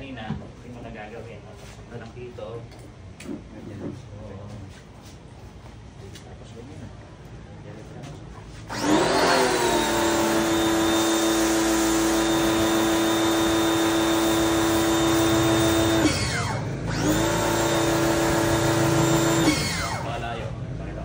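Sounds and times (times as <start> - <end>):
pressure washer motor whining: 8.7 - 20.4.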